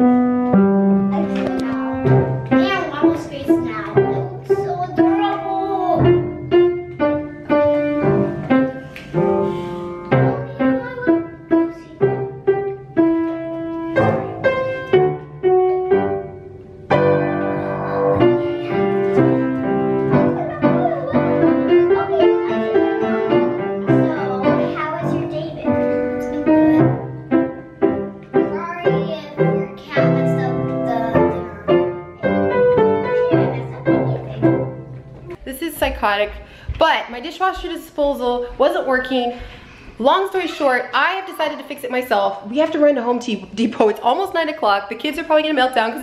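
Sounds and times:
upright piano playing: 0:00.0 - 0:36.4.

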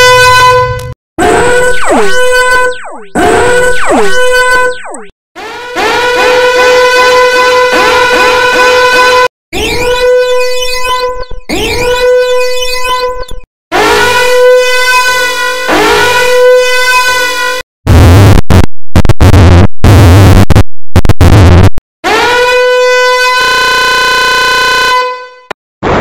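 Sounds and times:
buzzy electronic alarm horn: 0:00.0 - 0:17.6, 0:22.0 - 0:25.6
distorted stuttering alarm bursts: 0:01.2 - 0:05.1, 0:09.6 - 0:13.3, 0:17.9 - 0:21.8.

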